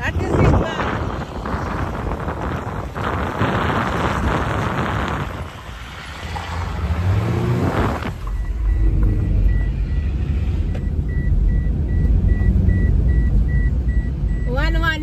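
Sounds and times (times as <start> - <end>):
wind buffeting microphone: 0.0 - 9.6
engine revving: 0.0 - 14.8
low road rumble in car: 0.0 - 15.0.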